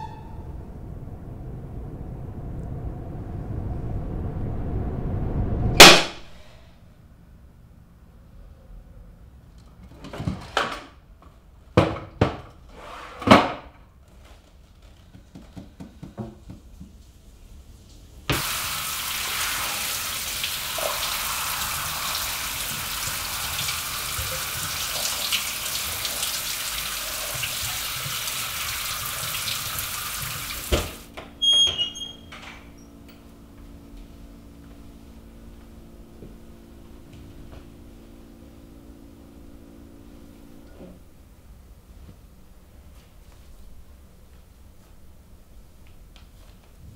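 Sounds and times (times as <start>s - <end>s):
short high squeaks: 0.0s - 0.8s, 31.4s - 33.0s
sharp loud hits: 5.6s - 6.6s
shower running water: 16.8s - 31.1s.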